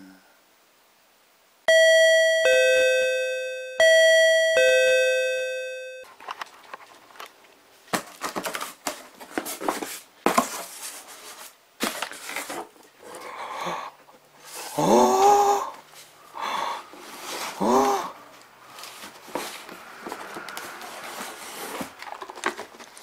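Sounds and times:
ding-dong doorbell chime: 1.7s - 6.1s
cardboard parcel being opened: 6.1s - 13.2s, 16.9s - 23.0s
plastic packing rustling: 6.1s - 13.2s, 16.9s - 23.0s.

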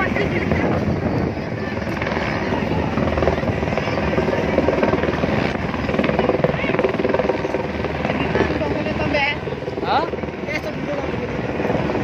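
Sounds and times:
helicopter flying overhead: 0.0s - 12.0s.

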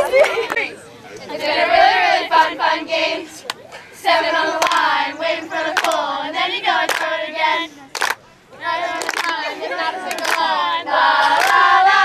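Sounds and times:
girls chanting a cheer: 1.3s - 12.0s
hand claps: 4.6s - 4.9s, 5.8s - 6.0s, 6.9s - 7.1s, 8.0s - 8.2s, 9.0s - 9.4s, 10.1s - 10.5s.

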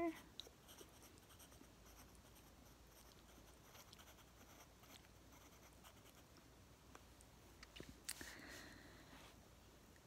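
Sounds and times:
pencil scratching on paper: 0.0s - 6.3s.

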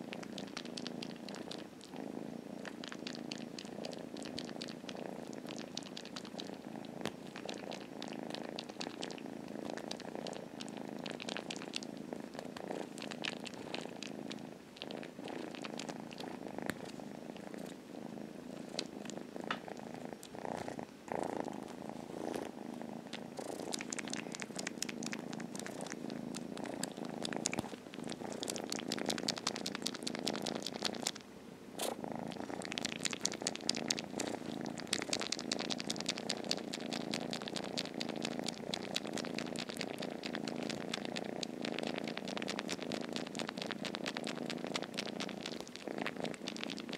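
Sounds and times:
kitten purring: 0.0s - 46.9s
wet smacking clicks of suckling: 19.5s - 20.4s.

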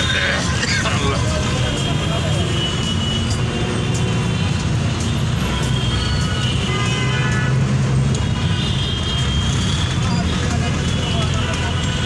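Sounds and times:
traffic engine rumble: 0.0s - 12.0s
vehicle horns tooting: 5.4s - 12.0s.

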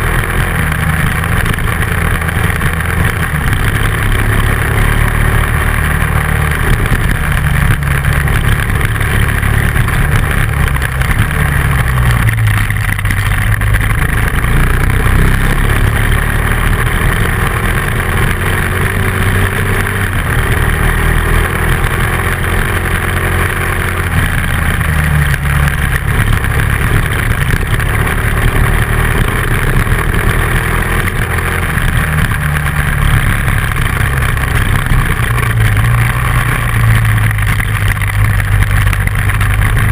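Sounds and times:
motorcycle engine revving: 0.0s - 39.9s
tyres on gravel: 0.0s - 39.9s.

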